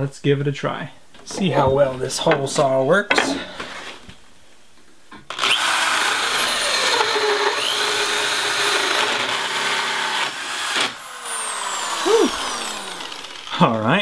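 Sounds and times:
electric drill with hole saw cutting: 5.3 - 13.8.

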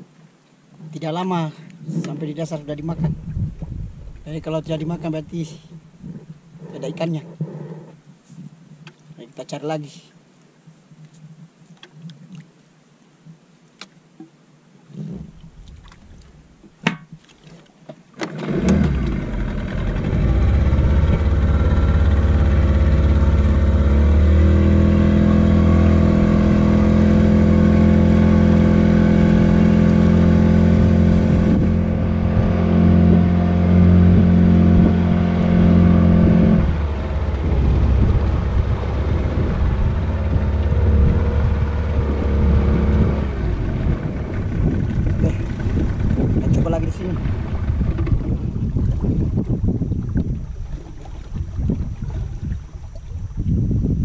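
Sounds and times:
sharp knocks: 16.8 - 17.2
boat engine running: 18.2 - 54.0.

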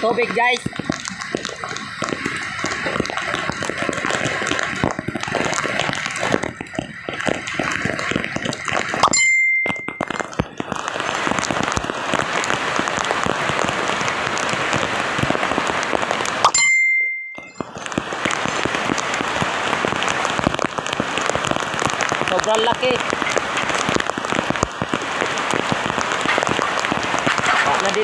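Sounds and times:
heavy rain pattering: 0.0 - 28.0
short high beep: 16.5 - 17.6.

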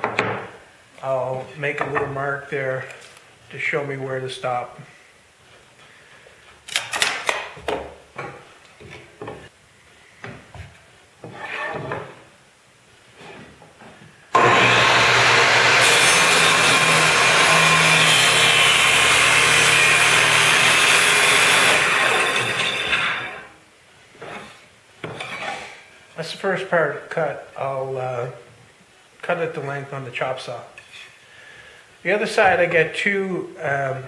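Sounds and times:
knocks and rustles of wood and tools: 0.0 - 0.6, 6.7 - 9.5, 10.2 - 12.3
table saw ripping wood: 14.3 - 23.5.

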